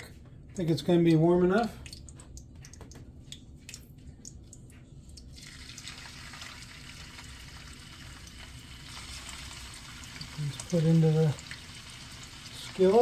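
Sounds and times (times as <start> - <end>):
meat sizzling in oil: 5.4 - 13.0.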